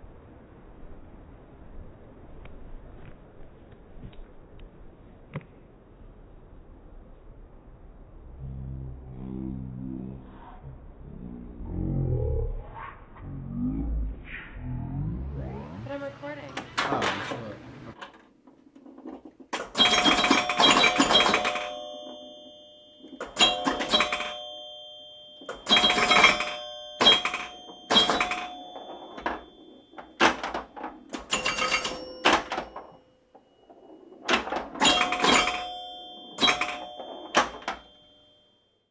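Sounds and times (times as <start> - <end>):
bright ringing tone: 14.9 - 16.5, 19.8 - 38.9.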